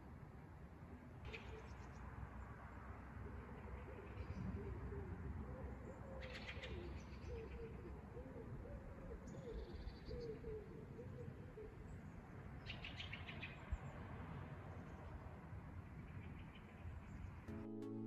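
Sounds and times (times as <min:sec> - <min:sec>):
pigeon cooing: 0:03.2 - 0:11.8.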